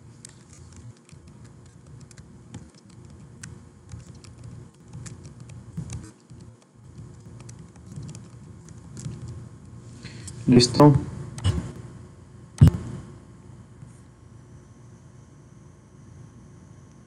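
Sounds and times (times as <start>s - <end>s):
computer keyboard typing: 0.2s - 9.4s.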